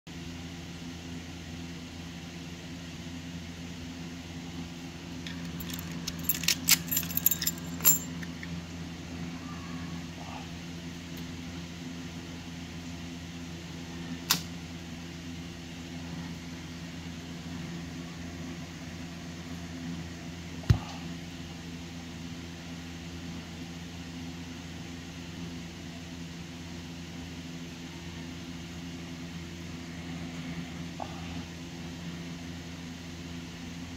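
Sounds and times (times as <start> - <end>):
steady low hum: 0.1 - 33.9
sharp metal clicks: 5.3 - 8.2
keys and padlock jingling: 5.3 - 8.4.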